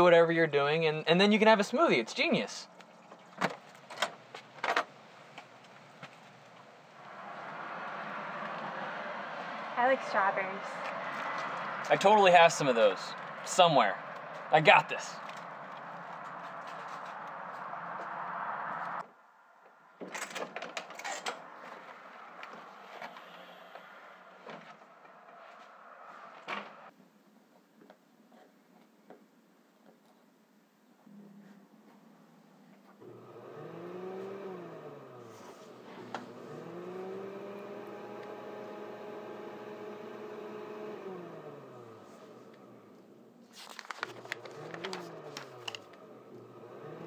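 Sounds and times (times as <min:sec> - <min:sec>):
blender motor whirring: 0:33.0 - 0:42.0, 0:44.2 - 0:47.0.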